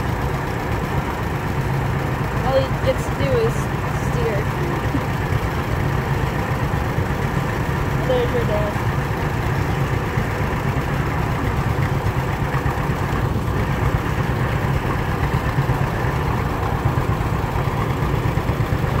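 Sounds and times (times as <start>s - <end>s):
tractor engine pulsing: 0.0s - 19.0s.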